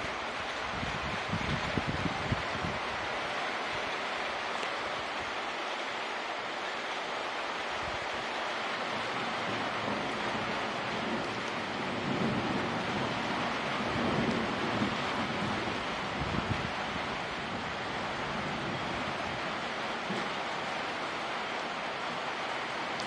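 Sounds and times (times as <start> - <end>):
steady rain falling: 0.0 - 23.0.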